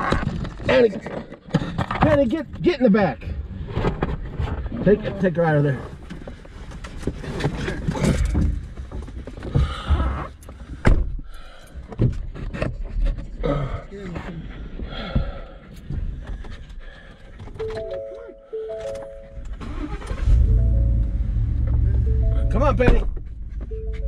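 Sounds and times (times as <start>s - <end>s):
steady beeping tones: 17.6s - 19.6s, 20.3s - 23.0s, 23.6s - 24.0s
thumps against car interior: 22.8s - 24.0s.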